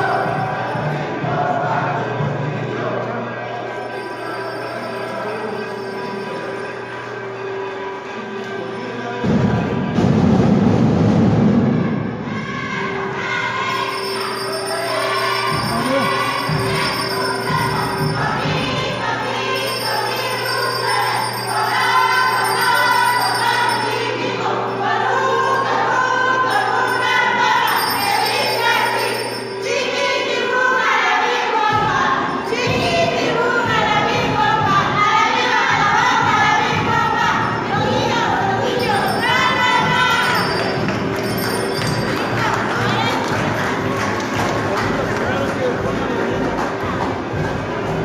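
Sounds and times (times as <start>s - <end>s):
group of voices singing: 0.0s - 7.1s, 11.6s - 48.0s
bells jingling: 3.8s - 7.6s, 13.6s - 30.6s, 38.6s - 43.2s.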